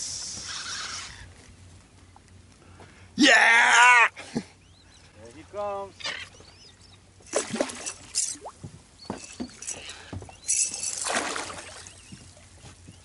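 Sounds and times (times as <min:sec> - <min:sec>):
fish splashing at water surface: 0:07.3 - 0:08.5, 0:10.6 - 0:12.0.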